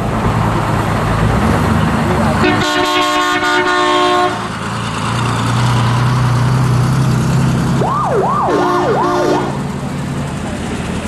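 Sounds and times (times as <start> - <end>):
engine droning: 0.0 - 11.0
fire truck horn: 2.4 - 4.5, 7.8 - 9.7
siren wailing: 7.8 - 9.6.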